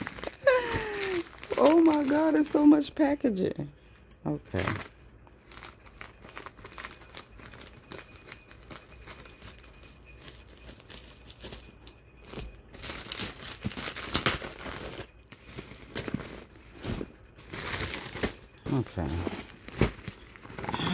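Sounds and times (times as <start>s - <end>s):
scissors cutting plastic mailer: 0.0s - 2.5s, 10.5s - 16.4s
crinkling plastic packaging: 0.0s - 3.0s, 4.4s - 20.9s.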